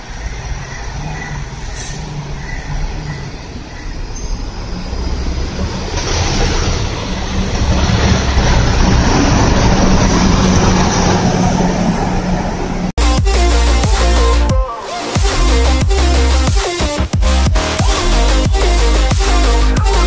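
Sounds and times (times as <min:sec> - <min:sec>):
bus driving past: 0:00.0 - 0:13.0.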